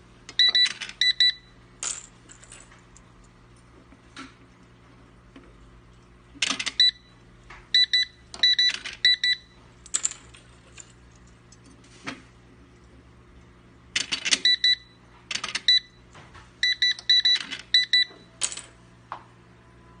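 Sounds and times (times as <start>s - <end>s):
card reader short high beeps: 0.4s - 1.6s, 6.6s - 7.2s, 7.8s - 9.6s, 14.3s - 15.0s, 15.6s - 16.0s, 16.6s - 18.4s.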